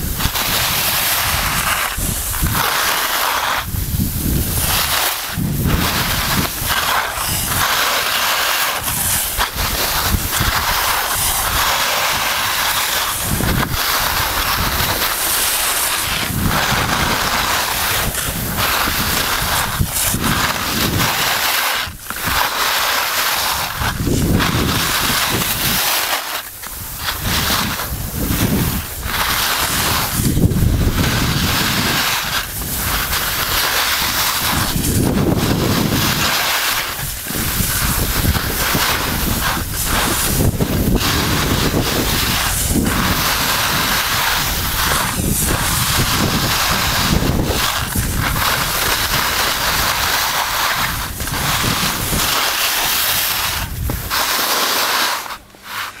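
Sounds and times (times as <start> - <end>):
skis scraping over snow: 0.0 - 56.0
wind buffeting microphone: 3.6 - 7.8, 8.8 - 15.3, 16.0 - 21.3, 23.7 - 25.8, 26.8 - 36.4, 37.0 - 52.4, 53.5 - 54.1.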